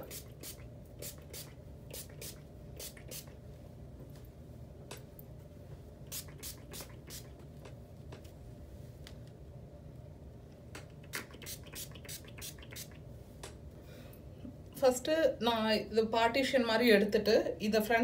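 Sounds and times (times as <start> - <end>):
pump spray bottle misting: 0.0 - 3.4, 6.1 - 7.4, 11.1 - 13.0.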